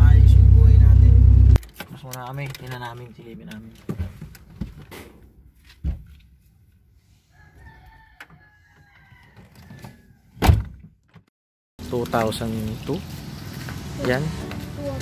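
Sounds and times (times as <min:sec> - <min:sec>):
rooster crowing: 0:07.3 - 0:10.3.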